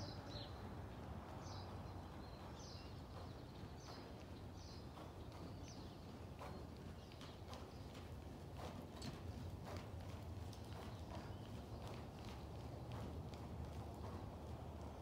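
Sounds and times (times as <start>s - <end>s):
hoofbeats on soft ground: 0.9s - 15.0s
bird chirping: 1.4s - 8.1s.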